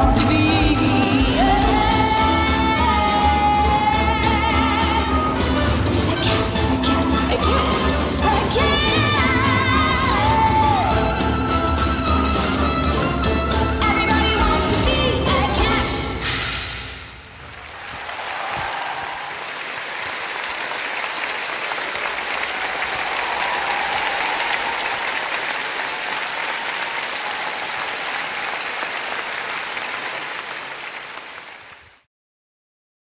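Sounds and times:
large crowd applauding: 5.0 - 13.3, 17.2 - 32.1.

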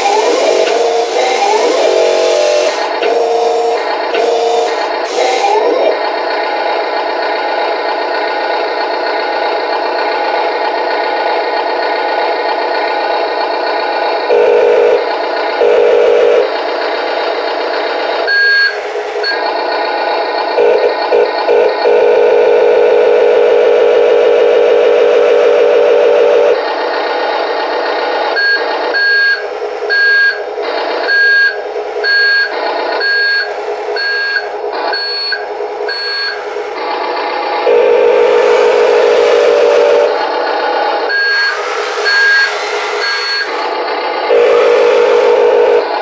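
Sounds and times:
reversing beeper short beeps: 0.0 - 5.9, 18.3 - 19.4, 28.4 - 30.4, 31.1 - 36.5, 41.1 - 43.6
model machine running sound: 0.0 - 29.0, 32.6 - 46.0
loud steady droning: 0.0 - 46.0.

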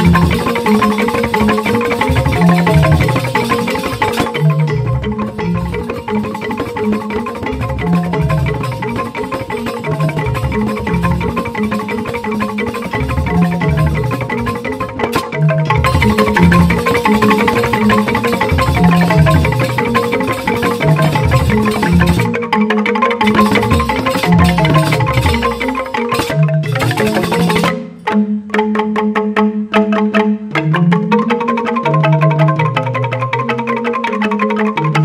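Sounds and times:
repeating low bass pattern: 0.0 - 22.3, 23.2 - 28.0
bamboo xylophones struck with mallets: 0.0 - 35.0.

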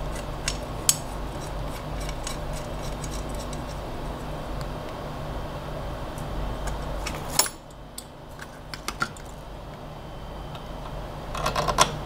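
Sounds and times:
small metal parts clicking: 0.0 - 3.8.

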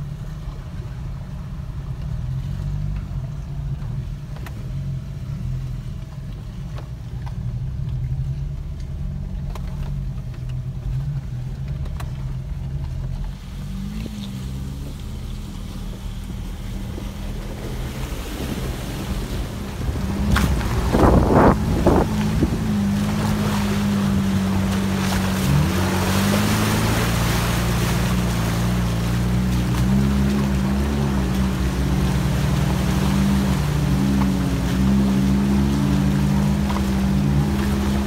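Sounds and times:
engines running low: 0.0 - 38.0.

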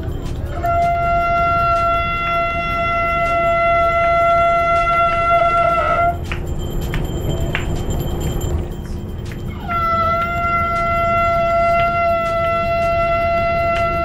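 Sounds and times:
conch shell blown: 0.0 - 6.4, 9.5 - 14.0.

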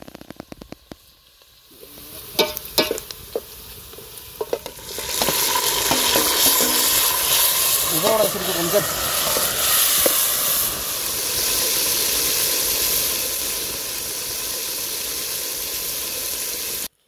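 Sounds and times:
vegetables sizzling in hot oil: 0.0 - 17.0
ladle stirring: 2.2 - 10.2.

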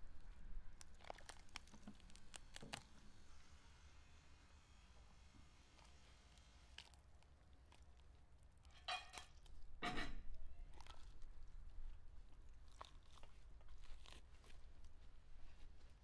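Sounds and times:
roast chicken tearing: 0.1 - 3.3, 5.7 - 16.0.

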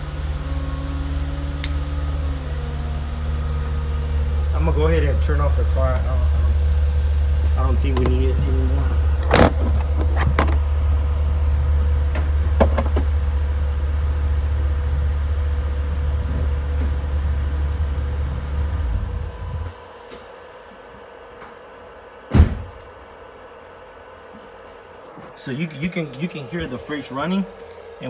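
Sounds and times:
car engine idling: 0.0 - 24.8
faint fridge hum: 0.0 - 28.0
loud knock: 22.3 - 22.8.

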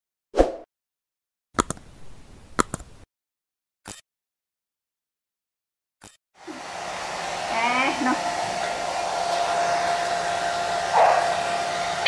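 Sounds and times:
hair dryer running: 6.4 - 12.0.

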